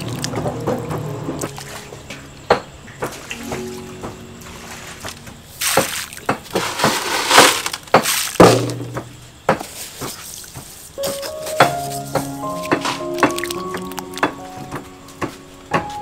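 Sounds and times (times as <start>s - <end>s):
plastic bag crinkling: 11.0s - 14.4s.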